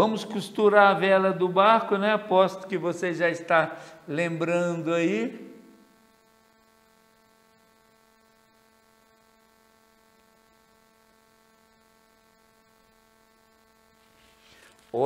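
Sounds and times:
man speaking: 0:00.0 - 0:05.7
mains hum: 0:00.0 - 0:15.0.

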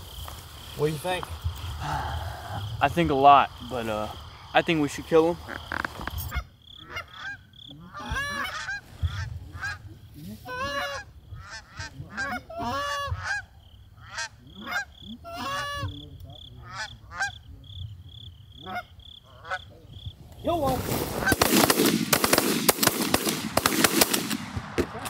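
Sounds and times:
geese honking: 0:05.3 - 0:17.6, 0:18.5 - 0:19.9.

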